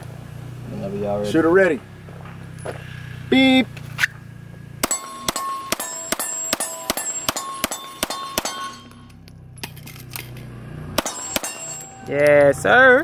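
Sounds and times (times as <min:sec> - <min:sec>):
handgun shots: 0:04.8 - 0:08.9, 0:11.0 - 0:11.8
steel plate target ringing: 0:04.8 - 0:09.8, 0:11.0 - 0:12.7.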